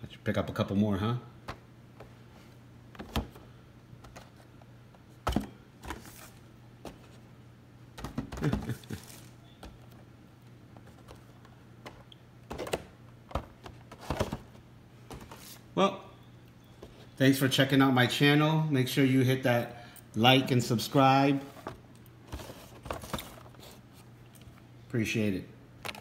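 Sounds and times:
cardboard boxes tapping and knocking: 0:08.0 - 0:08.9.

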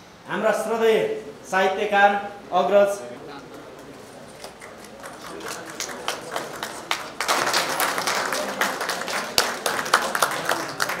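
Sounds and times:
hand claps: 0:03.7 - 0:11.0
audience applause: 0:04.3 - 0:11.0.

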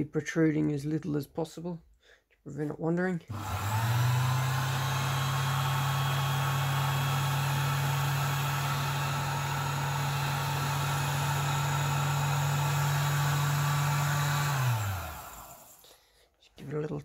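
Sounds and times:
bench lathe motor humming: 0:03.3 - 0:15.8.

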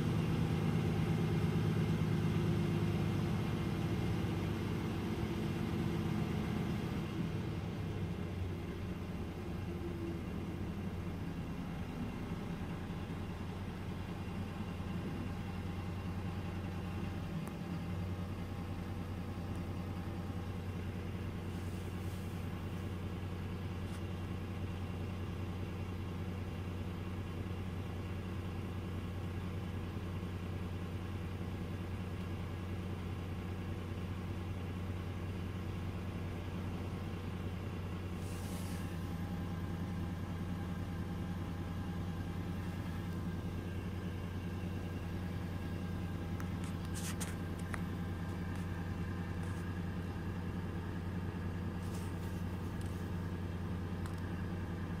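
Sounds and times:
diesel bus engine idling: 0:00.0 - 0:55.0
short hiss: 0:38.2 - 0:39.1.

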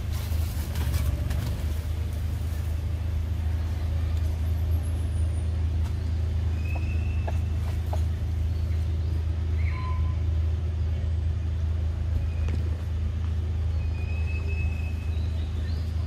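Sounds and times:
steady low rumble: 0:00.0 - 0:16.0
faint short high whistle: 0:09.6 - 0:10.2.

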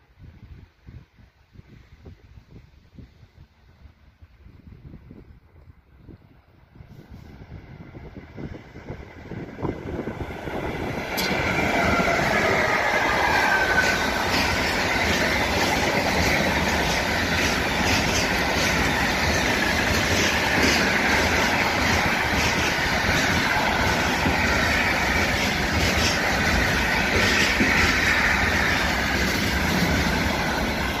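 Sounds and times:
train wheels rolling on rails: 0:06.8 - 0:31.0.

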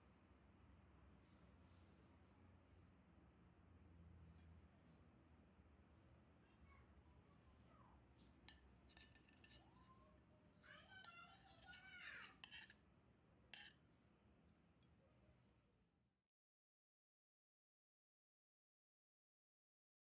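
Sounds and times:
metal spatula scraping a plate: 0:08.5 - 0:10.0, 0:10.7 - 0:12.8, 0:13.5 - 0:13.8.

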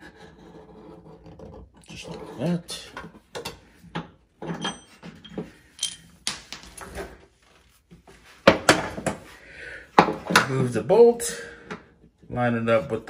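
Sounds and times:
metal clinks and scrapes: 0:04.4 - 0:07.2.

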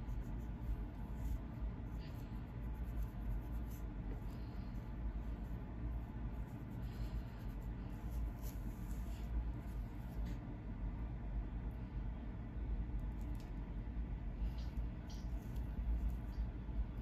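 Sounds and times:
low steady rumble: 0:00.0 - 0:17.0.

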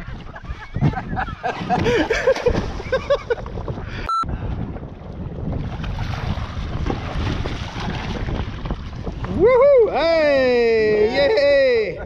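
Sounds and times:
water splashing against dinghy: 0:00.0 - 0:03.8, 0:04.5 - 0:09.5
wind buffeting microphone: 0:00.0 - 0:11.9
short beep: 0:04.1 - 0:04.3.

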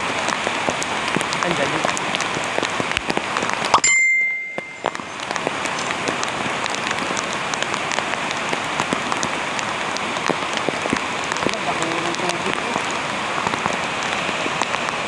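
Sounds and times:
rain falling: 0:00.0 - 0:15.0
steady high tone: 0:03.8 - 0:05.2.

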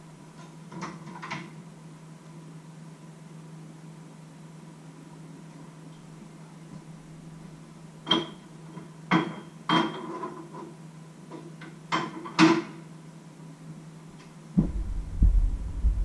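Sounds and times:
steady low hum: 0:13.5 - 0:16.0.

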